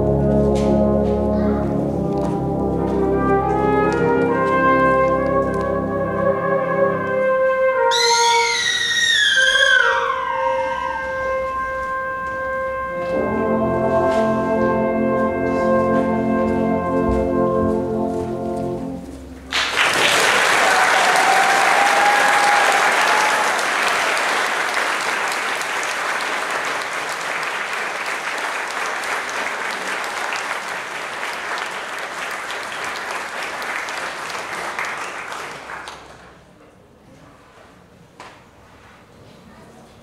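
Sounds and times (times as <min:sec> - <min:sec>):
brass band held chord: 0:00.0 - 0:08.6, 0:10.8 - 0:19.6
audience applause: 0:19.5 - 0:36.5.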